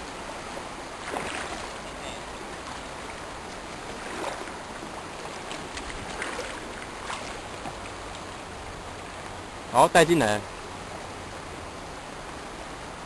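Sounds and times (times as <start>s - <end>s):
river water flowing: 0.0s - 13.0s.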